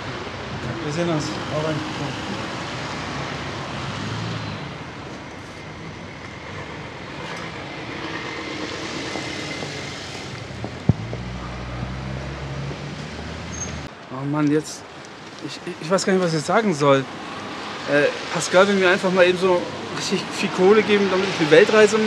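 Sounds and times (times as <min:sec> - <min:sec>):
low engine rumble: 0:04.7 - 0:13.9
tyres hissing on wet road: 0:07.1 - 0:13.7, 0:14.9 - 0:22.0
sharp knock: 0:10.6 - 0:11.4.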